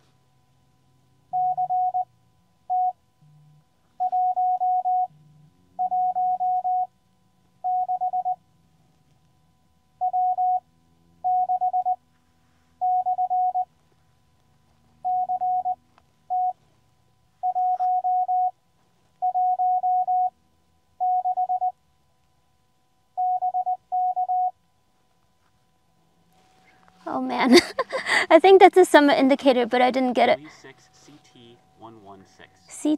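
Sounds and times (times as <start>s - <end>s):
morse code beeps: 1.3s - 2.1s, 2.7s - 3.0s, 4.0s - 5.1s, 5.8s - 6.9s, 7.6s - 8.4s, 10.0s - 10.6s, 11.2s - 12.0s, 12.8s - 13.7s, 15.0s - 16.6s, 17.4s - 18.6s, 19.2s - 20.4s, 21.0s - 21.8s, 23.2s - 24.6s.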